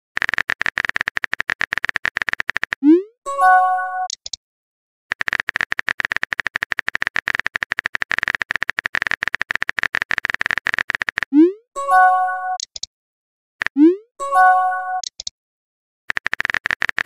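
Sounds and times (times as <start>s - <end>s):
phone keyboard clicks: 4.1s - 4.4s, 5.1s - 11.3s, 12.6s - 12.9s, 15.0s - 15.3s, 16.1s - 17.0s.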